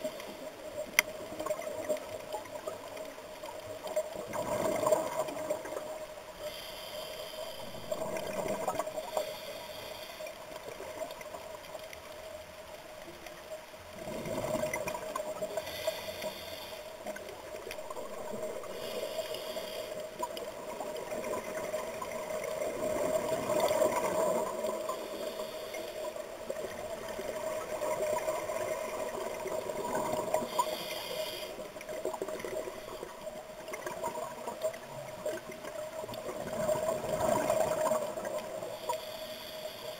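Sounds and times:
exhaled bubbles gurgling: 0:03.8 - 0:06.1, 0:07.5 - 0:09.3, 0:13.9 - 0:15.7, 0:20.2 - 0:25.2, 0:26.2 - 0:30.8, 0:31.7 - 0:38.8
scuba regulator breaths: 0:06.3 - 0:10.8, 0:15.3 - 0:17.2, 0:18.0 - 0:20.3, 0:24.0 - 0:26.4, 0:30.1 - 0:33.4, 0:38.1 - 0:39.9.

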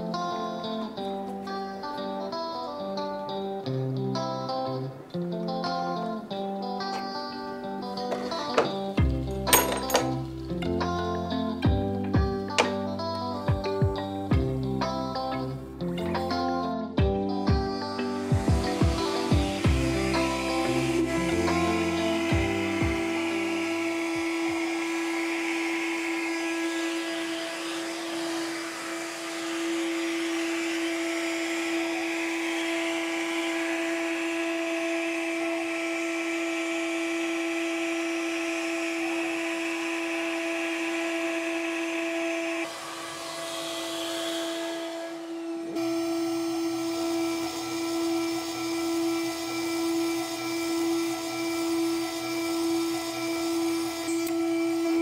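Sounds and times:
end mill cutting plastic: 0:08.0 - 0:13.4, 0:17.7 - 0:55.0
router spindle high whine: 0:17.4 - 0:55.0.

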